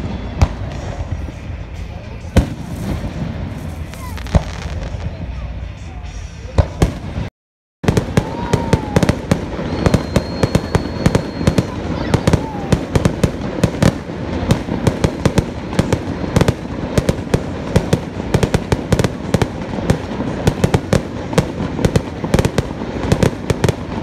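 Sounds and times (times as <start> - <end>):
fireworks bangs and cracks: 0.0 - 24.0
fireworks crackling rumble: 0.0 - 24.0.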